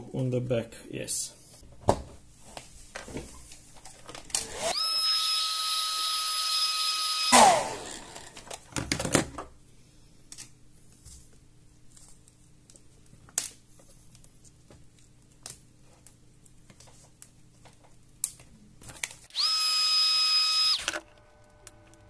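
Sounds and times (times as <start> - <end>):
hair dryer whine: 4.4 - 8.4, 19.3 - 22.0.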